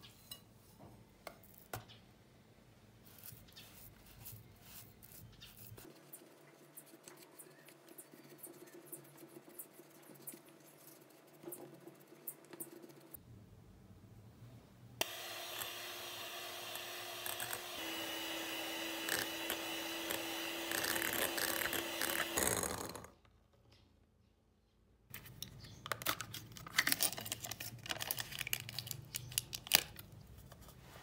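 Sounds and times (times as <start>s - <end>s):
electric hand mixer whipping cream: 15.0s - 23.1s.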